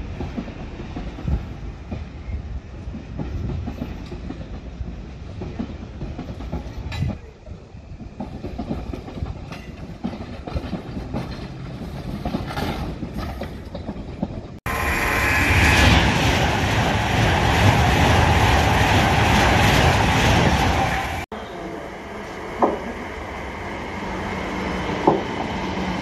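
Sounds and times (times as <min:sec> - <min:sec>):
express train passing at speed: 0:00.0 - 0:26.0
underground train rattling past: 0:00.0 - 0:26.0
station platform noise: 0:14.3 - 0:26.0.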